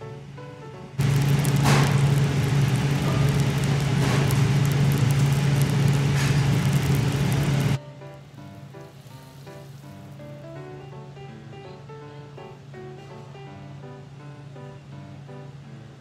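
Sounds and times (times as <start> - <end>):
low hum: 1.0 - 7.8
butter sizzling on a grill: 1.0 - 10.4.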